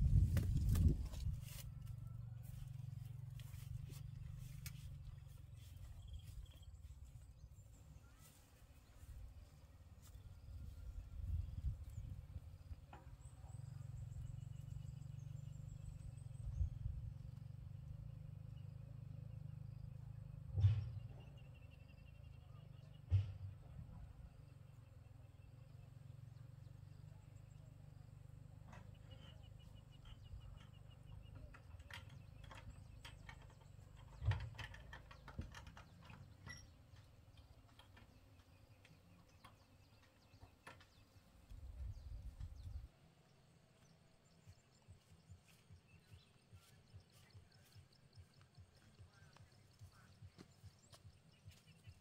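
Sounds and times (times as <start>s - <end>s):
wind rumble on microphone: 0.0s - 2.3s, 10.2s - 18.0s, 41.5s - 42.9s
bird chirps: 24.2s - 52.0s.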